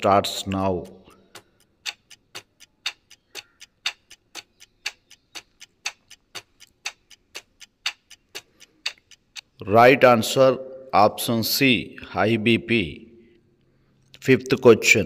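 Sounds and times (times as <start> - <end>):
clock ticking: 0.0 - 10.2.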